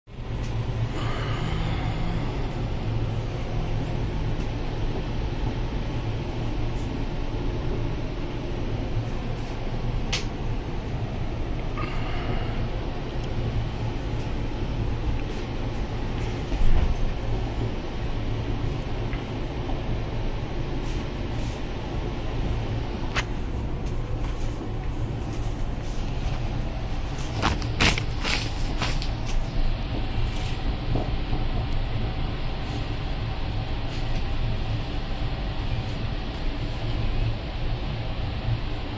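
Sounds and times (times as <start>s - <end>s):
train interior rumble: 0.1s - 38.9s.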